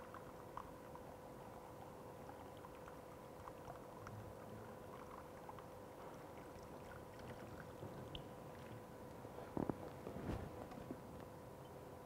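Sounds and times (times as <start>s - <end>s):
water trickling into pipe: 0.0s - 9.2s
faint hum: 0.0s - 12.0s.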